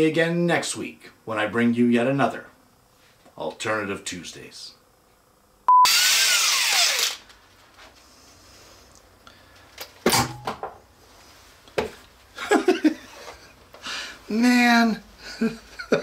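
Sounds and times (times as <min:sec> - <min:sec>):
short beep: 0:05.7 - 0:06.0
power tool whine: 0:05.8 - 0:07.3.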